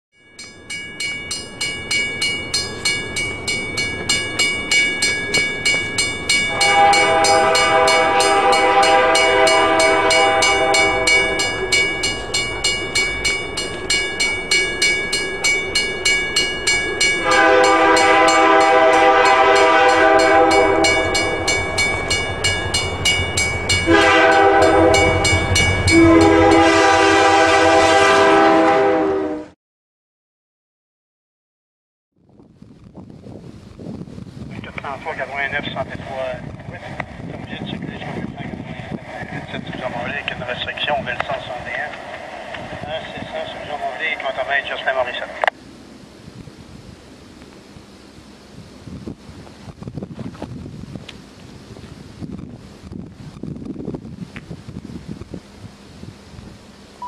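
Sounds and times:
bell ringing: 0.2 - 18.5, 19.3 - 26.4
locomotive air horn: 6.4 - 12.9, 17.2 - 29.6.

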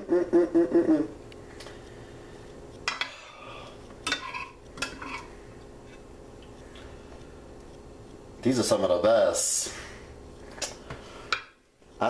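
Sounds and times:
metal spoon clinking on dishes: 4.0 - 5.2.

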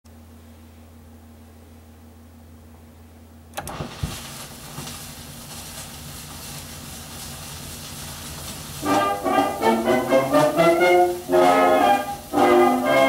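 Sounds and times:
record crackle and hiss: 3.5 - 13.0.

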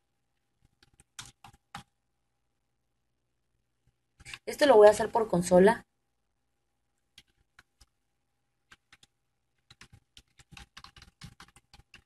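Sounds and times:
faint keyboard typing: 0.3 - 2.1, 3.8 - 5.1, 6.9 - 12.0.

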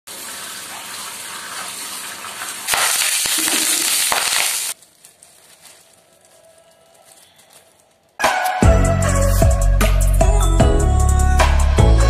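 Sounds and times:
tap water running onto vegetables: 0.1 - 4.8
tofu sizzling in hot oil: 0.1 - 4.8.

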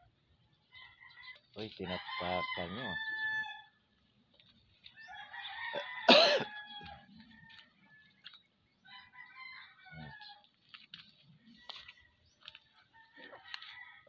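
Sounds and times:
rooster crowing: 0.7 - 3.8, 5.0 - 8.2, 8.9 - 10.4, 12.9 - 14.0
chicken calls: 4.8 - 10.5.

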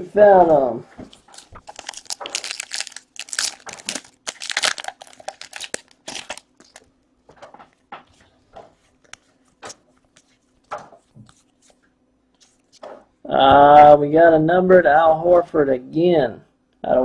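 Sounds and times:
cards rustling: 1.1 - 6.9, 8.0 - 13.0
foil wrapper crinkling and tearing: 1.2 - 6.9.

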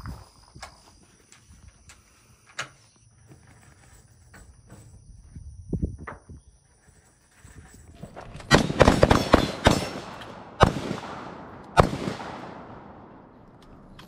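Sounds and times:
rifle shots echoing: 8.4 - 13.9.

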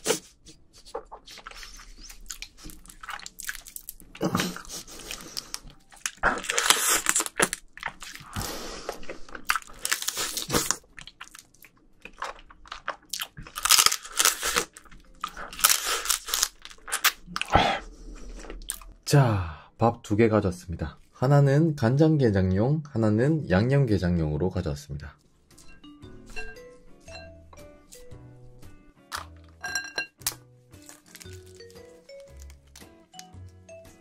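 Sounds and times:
crab shell crunching: 1.0 - 17.5, 30.2 - 33.6.

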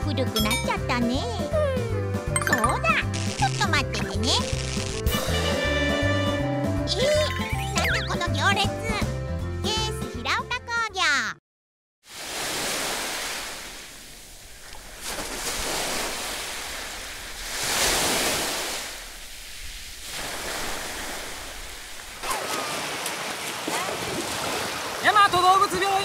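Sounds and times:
sea waves washing on beach: 12.1 - 26.0.

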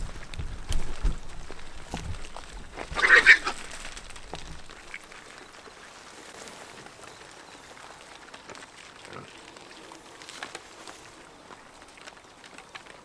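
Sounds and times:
hog squealing: 2.9 - 3.6.

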